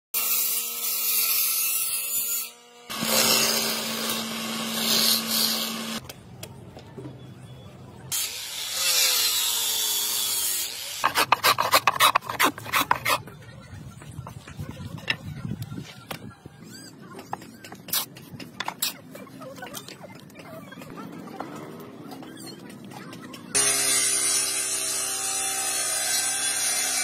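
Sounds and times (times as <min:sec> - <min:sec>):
table saw cutting wood: 0:00.2 - 0:06.0, 0:08.1 - 0:13.2, 0:23.6 - 0:27.0
hand blade scraping wood: 0:11.0 - 0:13.3.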